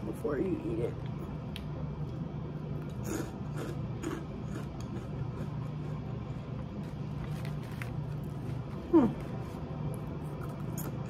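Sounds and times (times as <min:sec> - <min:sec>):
steady low hum: 0:00.0 - 0:11.0
crunching crackers while chewing: 0:02.8 - 0:11.0.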